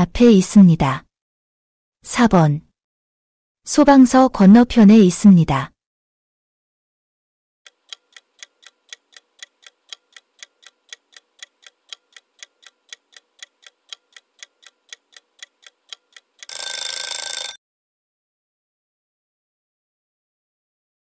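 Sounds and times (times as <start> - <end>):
clock ticking: 7.7 - 17.6.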